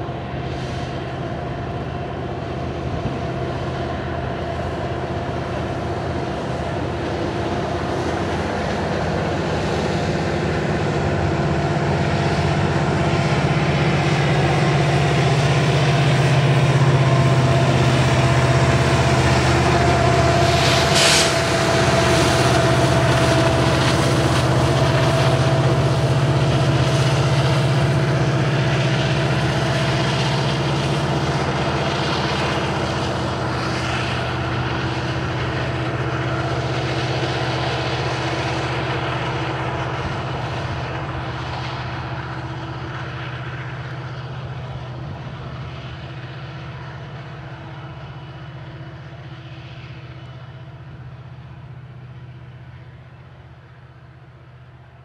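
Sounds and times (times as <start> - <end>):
diesel locomotive engine drone: 0.0 - 55.0
brief high hiss: 20.6 - 21.5.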